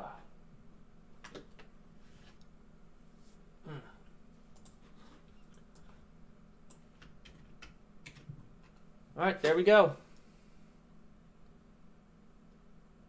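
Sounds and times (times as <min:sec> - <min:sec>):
keyboard and mouse clicking: 0:04.5 - 0:04.8, 0:06.7 - 0:08.8.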